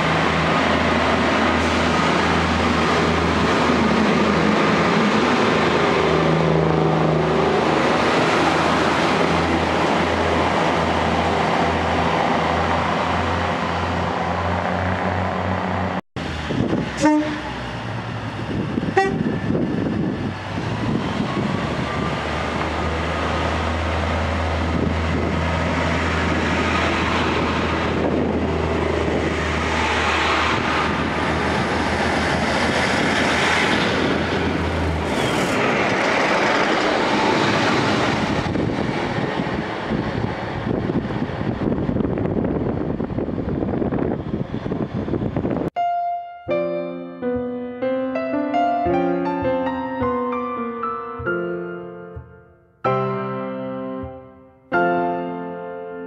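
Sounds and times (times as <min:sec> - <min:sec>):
rail and wheel noise: 0:00.0 - 0:45.8
train horn toot: 0:17.0 - 0:17.6, 0:19.0 - 0:19.4.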